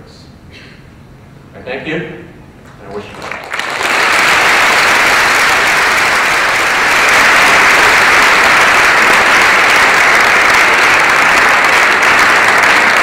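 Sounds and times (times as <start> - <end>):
large audience applauding: 2.9 - 13.0.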